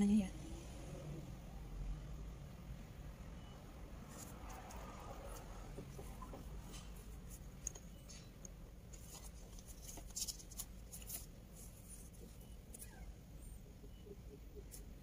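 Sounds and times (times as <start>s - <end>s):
low steady hum: 0.0s - 15.0s
handling clicks and rustles: 4.1s - 12.9s.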